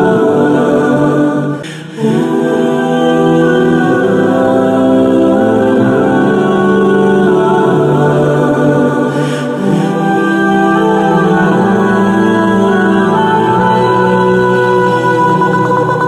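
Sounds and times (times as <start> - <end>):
wordless choir humming: 0.0 - 16.0.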